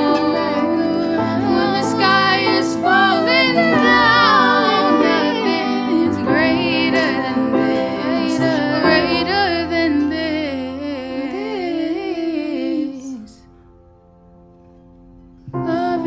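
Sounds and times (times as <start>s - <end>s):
instrumental accompaniment: 0.0s - 11.6s
woman singing: 0.0s - 13.5s, 15.6s - 16.0s.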